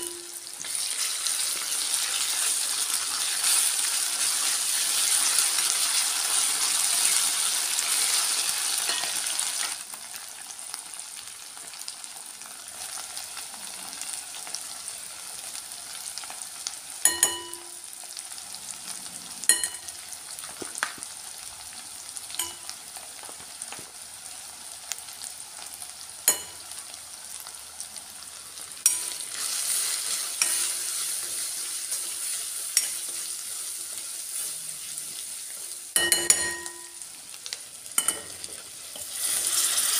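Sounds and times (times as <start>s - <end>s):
steel spoon clinking on pan: 0.0s - 0.5s, 8.8s - 9.3s, 17.1s - 17.8s, 19.5s - 20.0s, 22.4s - 22.8s, 26.3s - 26.8s, 28.8s - 29.3s, 30.4s - 31.3s, 32.7s - 33.2s, 36.0s - 37.0s, 38.0s - 39.1s
vegetables sizzling in oil: 0.0s - 39.9s.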